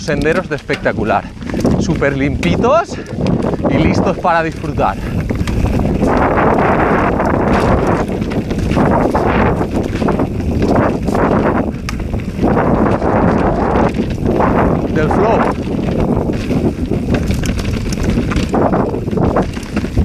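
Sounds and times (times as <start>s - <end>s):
bike rattling: 0.0s - 20.0s
bike tyres rolling on dirt: 0.0s - 20.0s
wind rushing over microphone: 0.0s - 20.0s.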